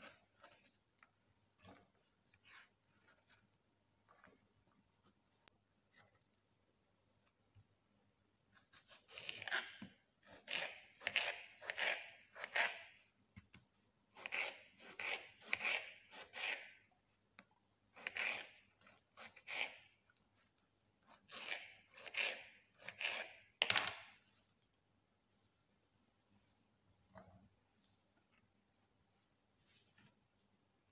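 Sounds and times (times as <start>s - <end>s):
knife slicing tomato: 8.5s - 23.6s.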